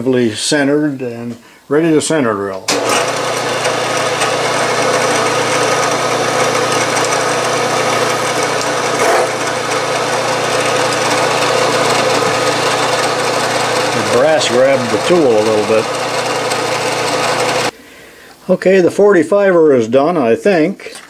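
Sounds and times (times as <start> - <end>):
drill cutting into brass: 2.7 - 17.7
drilling machine hum: 2.7 - 17.7
loud scrape: 7.9 - 9.6.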